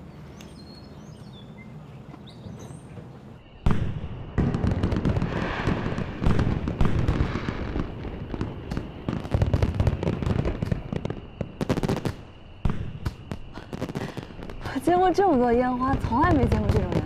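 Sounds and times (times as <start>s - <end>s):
fireworks bangs: 3.0s - 17.0s
fireworks crackling: 3.6s - 17.0s.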